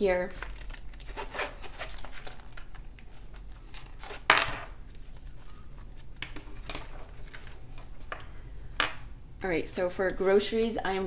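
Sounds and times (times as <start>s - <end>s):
wallet and envelope rustling: 0.3s - 8.4s.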